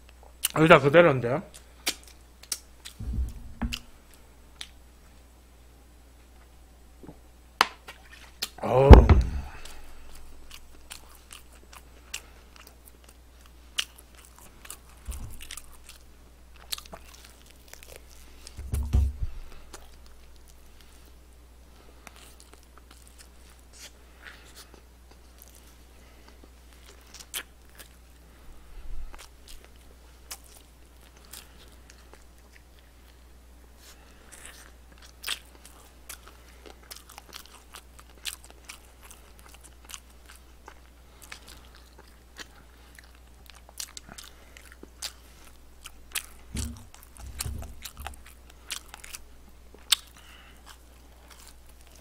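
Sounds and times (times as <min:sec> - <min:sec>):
steady low hum: 0:00.0 - 0:52.0
wet eating smacks: 0:01.5 - 0:03.0
dull low thumps: 0:03.0 - 0:04.1, 0:08.9 - 0:10.6, 0:18.6 - 0:19.5, 0:46.5 - 0:48.1
chewing and crunching: 0:09.5 - 0:18.6, 0:19.3 - 0:52.0.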